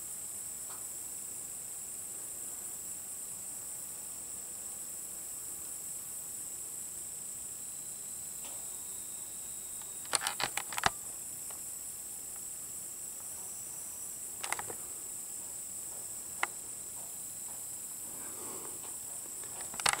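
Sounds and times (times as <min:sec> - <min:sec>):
faint outdoor hiss: 0:00.0 - 0:20.0
high-pitched insect chirring: 0:07.6 - 0:13.1, 0:13.8 - 0:18.0, 0:18.9 - 0:20.0
camera handling clicks and knocks: 0:10.1 - 0:10.9, 0:14.4 - 0:14.8, 0:19.6 - 0:20.0.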